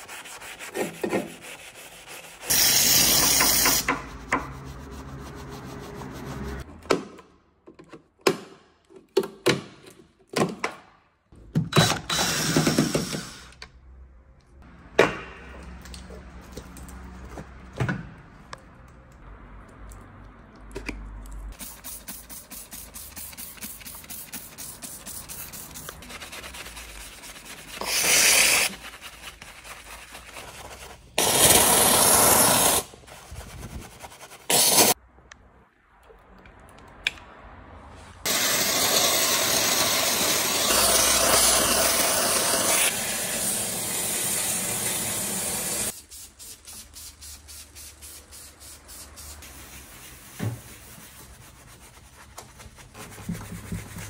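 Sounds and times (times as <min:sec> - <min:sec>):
spray hissing in bursts: 0:02.5 - 0:03.8.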